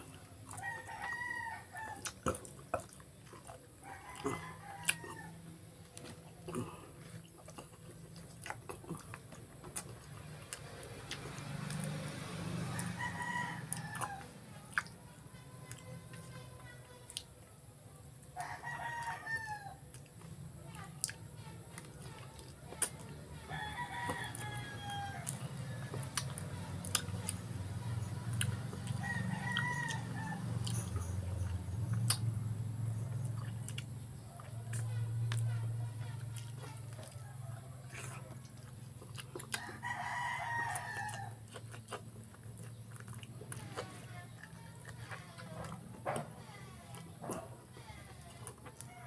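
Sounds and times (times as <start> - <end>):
rooster crowing: 0.5 - 2.2, 3.8 - 5.4, 11.8 - 14.4, 18.4 - 19.8, 23.4 - 26.4, 28.0 - 31.5, 36.6 - 38.7, 39.4 - 41.5
sharp clicks of eating food: 19.9 - 49.0.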